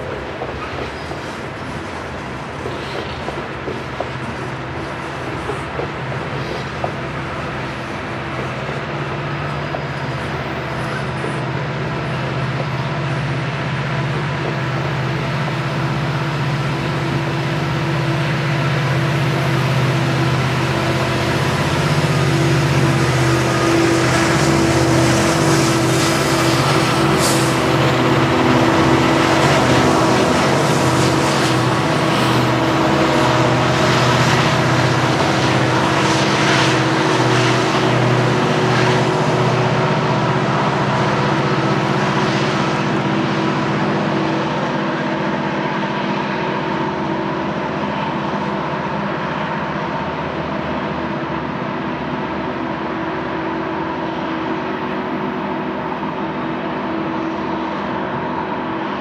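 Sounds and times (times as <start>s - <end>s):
diesel locomotive engines droning: 0.0s - 59.0s
freight cars rumbling past: 8.5s - 48.9s.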